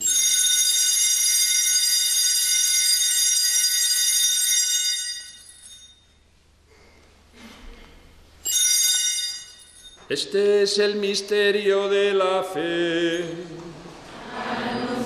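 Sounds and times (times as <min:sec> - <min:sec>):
small hand bells jingling: 0:04.5 - 0:06.0, 0:08.5 - 0:10.1.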